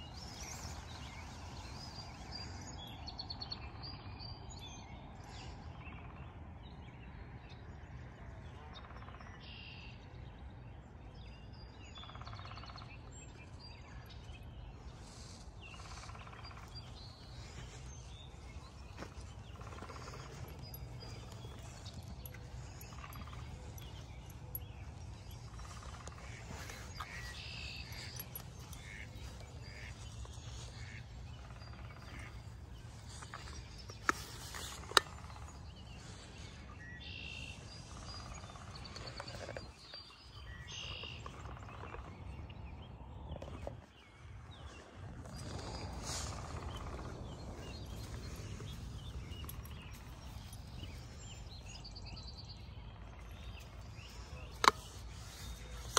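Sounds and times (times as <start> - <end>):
small birds chirping: 11.7 - 55.9.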